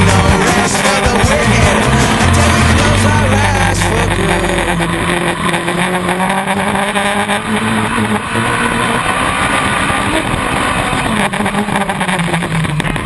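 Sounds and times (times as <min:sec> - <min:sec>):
engine running hard: 0:00.0 - 0:13.0.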